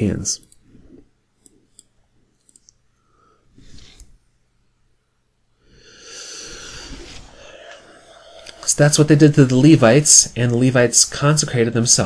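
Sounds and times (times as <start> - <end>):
person breathing in: 5.6 - 8.6.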